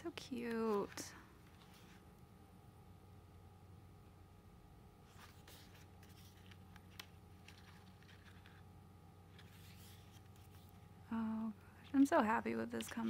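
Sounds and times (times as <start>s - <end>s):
pages turning and rustling: 0.5s - 2.1s, 5.0s - 10.9s, 11.8s - 13.0s.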